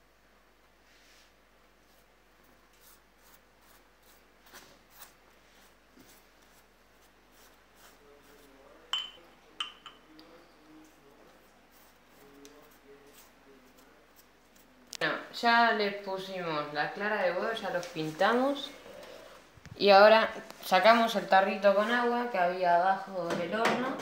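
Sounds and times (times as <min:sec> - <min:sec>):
pastry brush strokes on bread: 0:00.8 - 0:09.0, 0:10.6 - 0:14.8
brush clinking on ceramic cup: 0:08.9 - 0:10.1.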